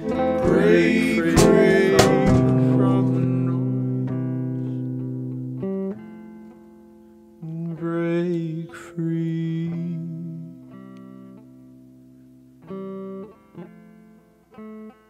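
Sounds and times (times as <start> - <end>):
man singing: 0.0 - 4.2, 7.4 - 10.7
guitar chords ringing: 0.0 - 15.0.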